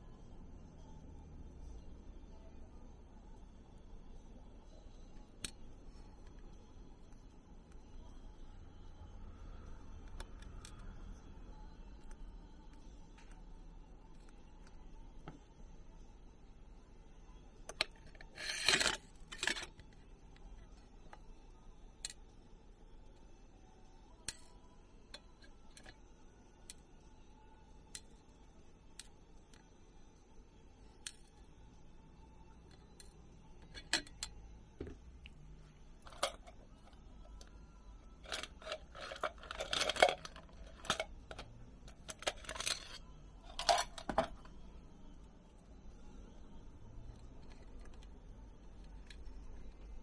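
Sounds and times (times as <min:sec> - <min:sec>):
small tools clicking and clattering: 0:17.7 - 0:20.0, 0:33.0 - 0:34.4, 0:38.2 - 0:44.5.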